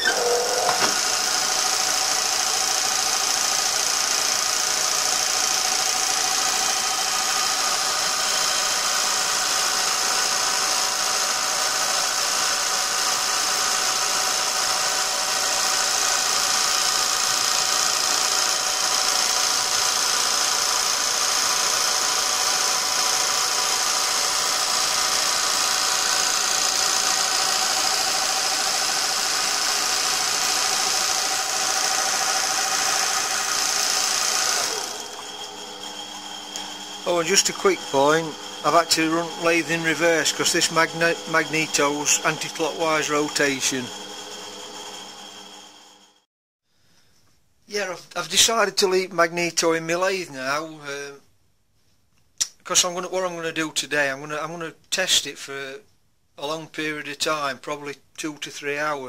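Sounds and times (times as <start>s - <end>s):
lathe mechanical whir: 0.0s - 46.2s.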